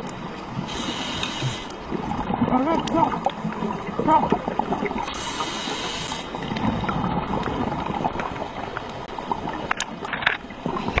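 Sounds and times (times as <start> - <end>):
underwater rumble and gurgle: 0.0 - 11.0
hiss: 0.7 - 1.8, 5.0 - 6.4.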